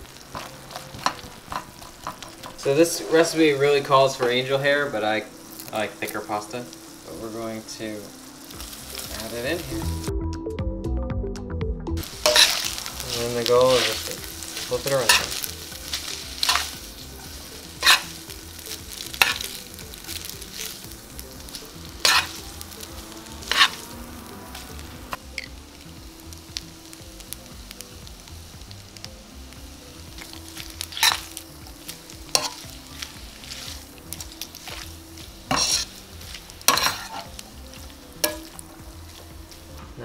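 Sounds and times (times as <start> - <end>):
pasta sizzling in a skillet: 0.0 - 10.1, 12.0 - 40.0.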